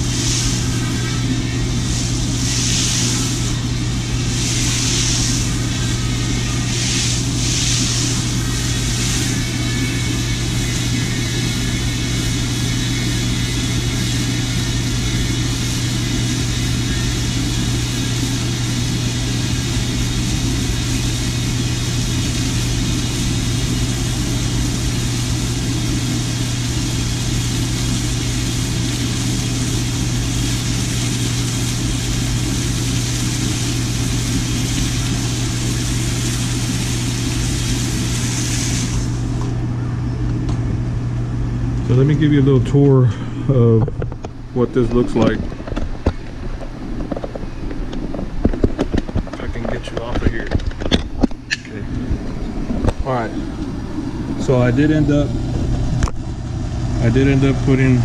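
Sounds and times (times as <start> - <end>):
hose spray hissing: 0.0 - 39.5
gas burner running: 0.0 - 58.0.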